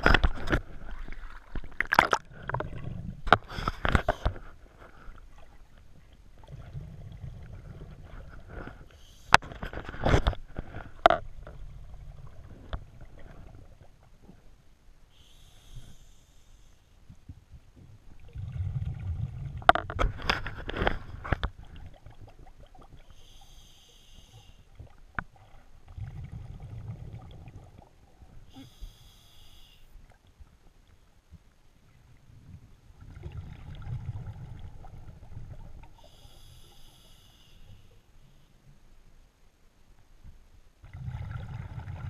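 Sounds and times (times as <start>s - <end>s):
diver inhaling hiss: 8.9s - 9.4s, 15.1s - 17.0s, 23.0s - 24.7s, 28.5s - 30.0s, 36.0s - 38.6s
bubbling exhale underwater: 40.8s - 42.0s.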